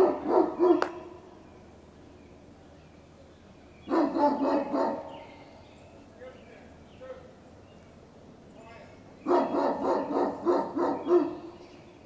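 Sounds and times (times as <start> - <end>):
dogs barking: 0.0 - 1.2, 3.9 - 5.4, 9.2 - 11.6.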